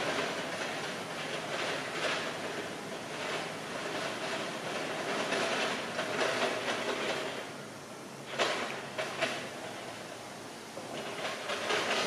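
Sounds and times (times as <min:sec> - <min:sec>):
metallic clatter: 0:00.0 - 0:07.5, 0:10.8 - 0:12.0.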